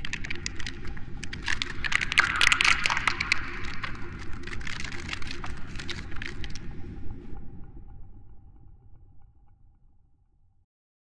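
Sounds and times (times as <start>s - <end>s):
dense crackling and snapping: 0.0s - 7.0s
low rumble: 0.0s - 10.5s.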